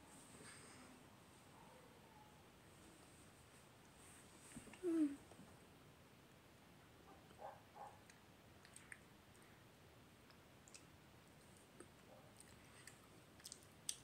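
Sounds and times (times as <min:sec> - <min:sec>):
mouth clicks while eating: 0:08.0 - 0:09.1, 0:10.2 - 0:10.9, 0:11.8 - 0:14.0.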